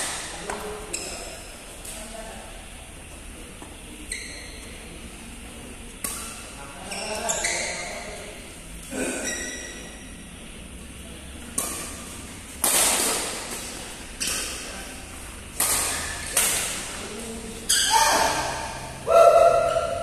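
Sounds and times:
shoe squeaks: 0:00.9 - 0:01.4, 0:04.0 - 0:04.7, 0:06.8 - 0:08.1, 0:09.2 - 0:10.0, 0:17.6 - 0:18.6
badminton rackets hitting shuttlecock: 0:06.0 - 0:06.4, 0:11.4 - 0:14.7, 0:15.5 - 0:17.0.

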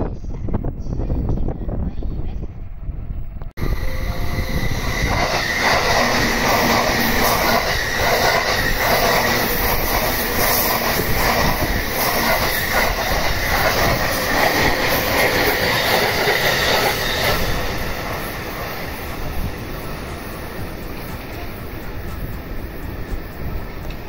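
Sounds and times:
gusty wind on microphone: 0:00.0 - 0:24.0
train wheel and track rumble: 0:00.0 - 0:24.0
wheels clacking over rail joints: 0:05.2 - 0:18.2.

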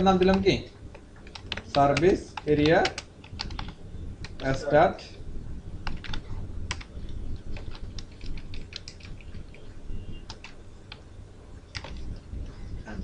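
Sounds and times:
keyboard typing clicks: 0:00.2 - 0:04.6, 0:05.8 - 0:11.0, 0:11.7 - 0:12.2.

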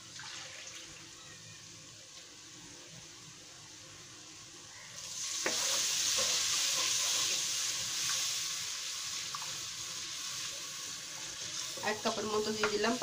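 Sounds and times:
masala sizzling in a pan: 0:00.0 - 0:13.0
spoon knocking against pan: 0:12.6 - 0:12.8.

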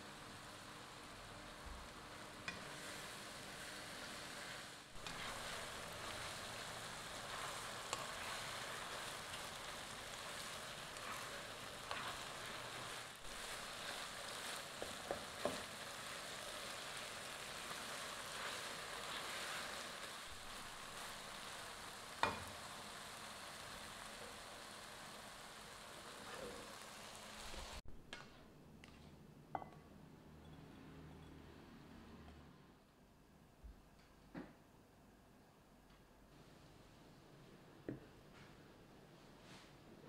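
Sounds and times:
meat sizzling in oil: 0:00.0 - 0:27.8.

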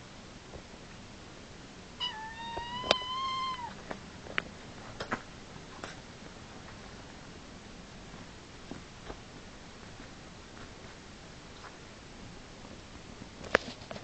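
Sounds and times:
cat meowing: 0:02.0 - 0:03.8.

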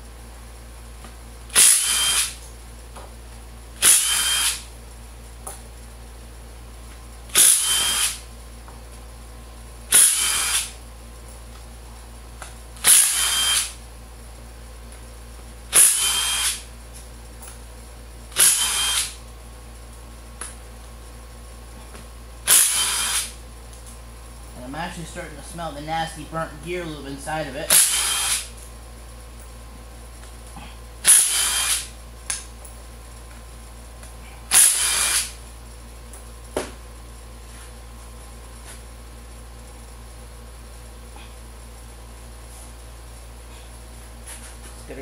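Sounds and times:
impact driver bursts: 0:01.5 - 0:02.4, 0:03.8 - 0:04.7, 0:07.3 - 0:08.2, 0:09.9 - 0:10.8, 0:12.8 - 0:13.8, 0:15.7 - 0:16.6, 0:18.3 - 0:19.2, 0:22.4 - 0:23.4, 0:27.7 - 0:28.5, 0:31.0 - 0:31.9, 0:34.5 - 0:35.4.

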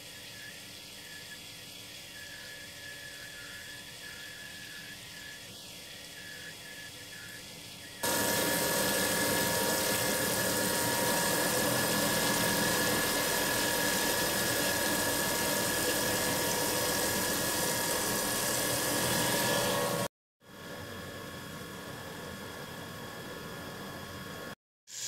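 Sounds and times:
milling spindle whine: 0:00.0 - 0:20.1
coolant spraying hiss: 0:08.0 - 0:20.0.

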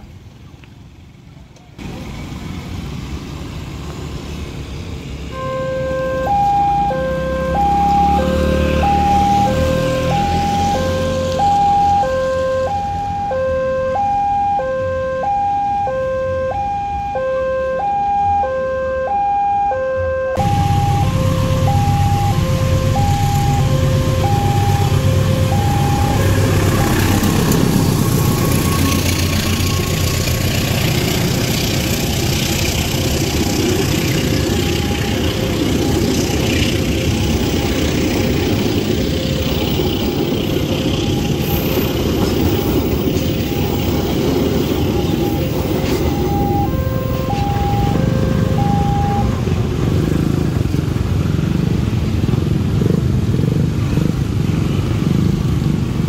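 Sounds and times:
diesel train rumbling over rails: 0:00.0 - 0:13.3, 0:20.4 - 0:56.0
level crossing two-tone alarm: 0:05.4 - 0:27.2, 0:44.8 - 0:49.4.

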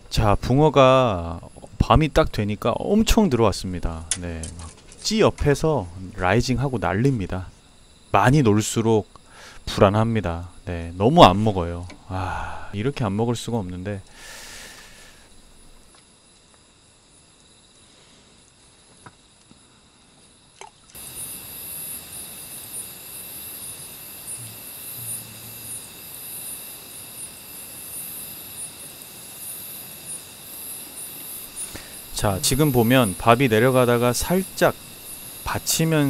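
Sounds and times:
night insects chirping: 0:00.0 - 0:36.0
small clicks: 0:04.0 - 0:05.6.

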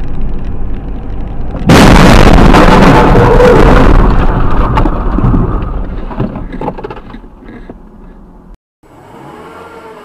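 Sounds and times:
car crash rumble and clatter: 0:00.0 - 0:07.9
steady vehicle hum: 0:00.0 - 0:10.0.

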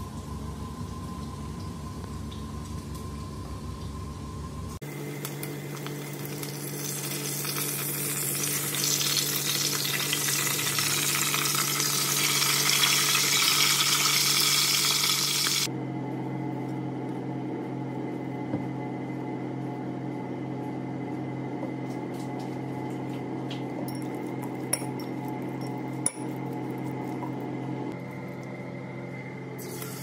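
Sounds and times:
meat frying in hot oil: 0:04.8 - 0:15.7
low steady hum: 0:15.6 - 0:30.0.

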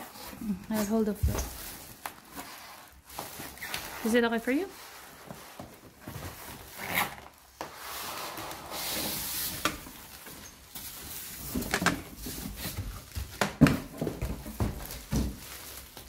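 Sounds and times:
cardboard and plastic rustling: 0:00.0 - 0:16.0.

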